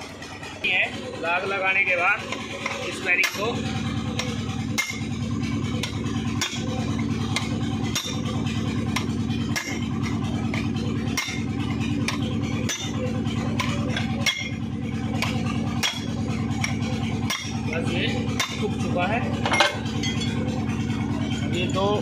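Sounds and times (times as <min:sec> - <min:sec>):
low engine-like hum: 0:00.0 - 0:22.0
metal tools clinking and tapping: 0:19.4 - 0:20.4.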